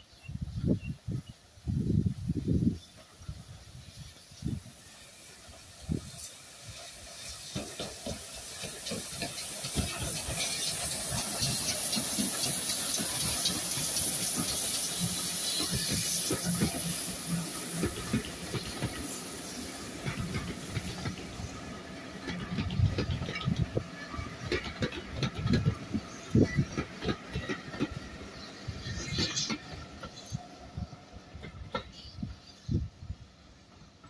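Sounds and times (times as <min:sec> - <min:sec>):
steam hiss: 0:01.6 - 0:33.2.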